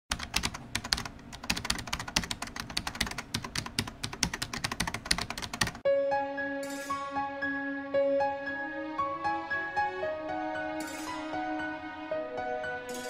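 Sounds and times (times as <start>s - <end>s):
fast keyboard typing: 0.1s - 5.8s
music: 5.8s - 13.0s.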